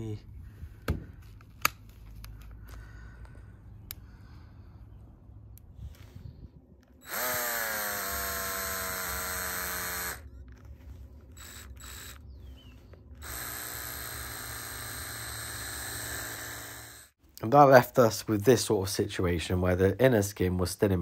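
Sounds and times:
cordless drill motor whine: 0:06.9 - 0:17.2.

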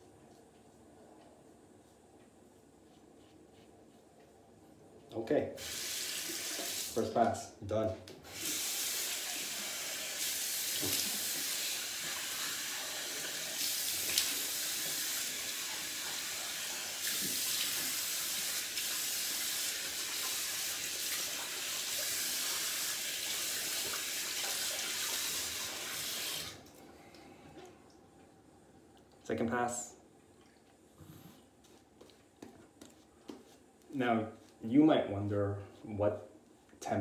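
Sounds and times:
sink tap running: 0:08.2 - 0:26.6.

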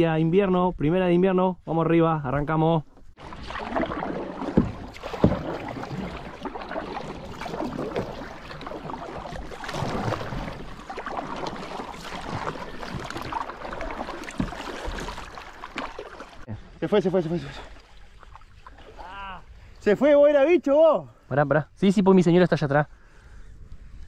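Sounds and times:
paddle splashing through water: 0:03.1 - 0:16.5, 0:17.1 - 0:19.6.

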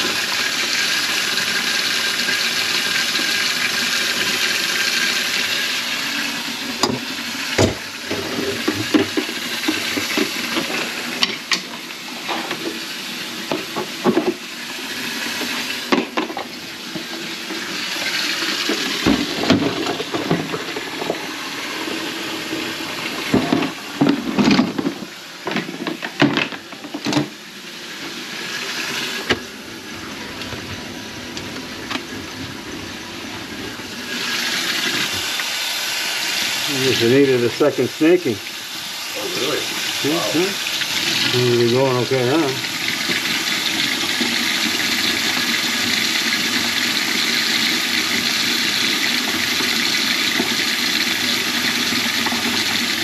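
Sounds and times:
water running into sink drain: 0:00.0 - 0:53.0.

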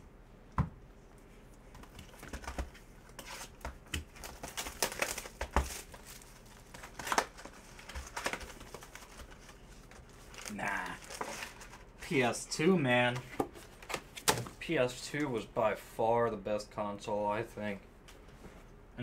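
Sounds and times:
cardboard box crinkling and tearing: 0:04.1 - 0:09.5.

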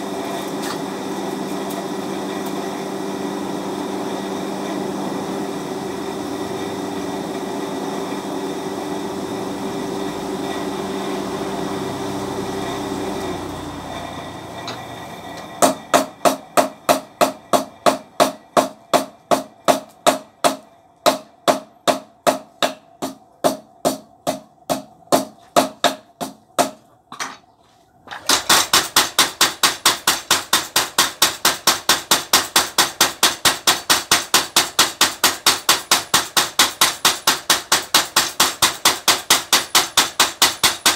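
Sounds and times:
motor hum: 0:00.0 - 0:18.0
power hammer pounding steel: 0:14.1 - 0:26.8, 0:28.2 - 0:40.9.

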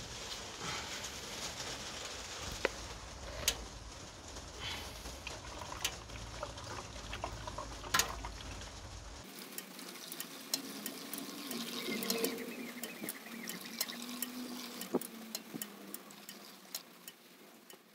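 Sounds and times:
liquid pouring into plastic tank: 0:04.7 - 0:08.7.

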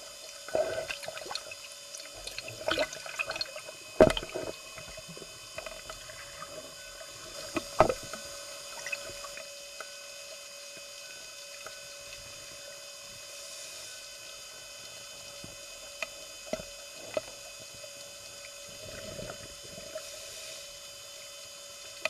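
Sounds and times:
underwater hum: 0:00.0 - 0:13.2, 0:14.2 - 0:22.0.

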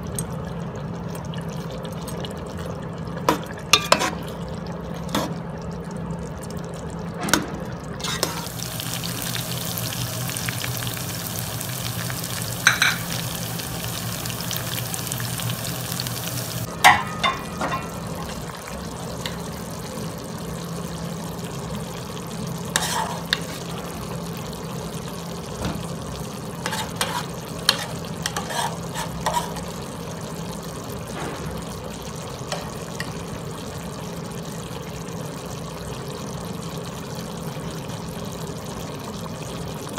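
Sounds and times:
metal spoon scraping a pot: 0:03.8 - 0:04.2, 0:08.0 - 0:08.5, 0:22.8 - 0:23.6, 0:26.6 - 0:29.7
chicken sizzling in a pot: 0:07.9 - 0:39.9.

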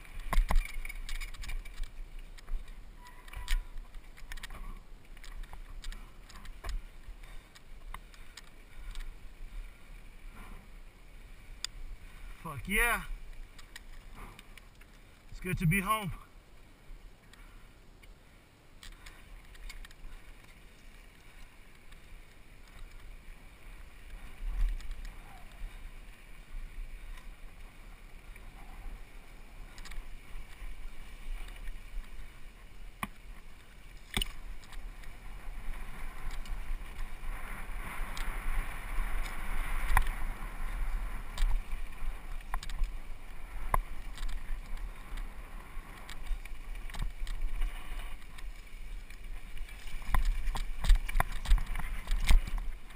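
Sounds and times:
bike knocking and rattling: 0:00.0 - 0:09.2, 0:41.2 - 0:52.9.

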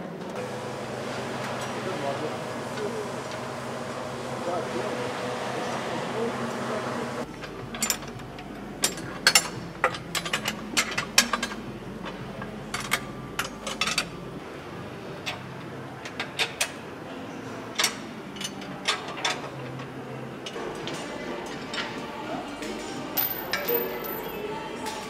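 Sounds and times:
low workshop hum: 0:00.0 - 0:25.0
metallic clicks and clanks of tools: 0:07.4 - 0:14.1, 0:23.2 - 0:24.4.

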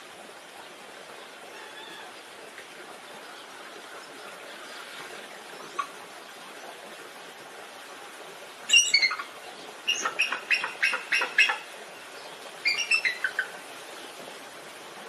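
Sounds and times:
faint steady hiss: 0:00.0 - 0:15.0
eagle chittering calls: 0:08.7 - 0:09.3, 0:09.9 - 0:11.7, 0:12.6 - 0:13.6.

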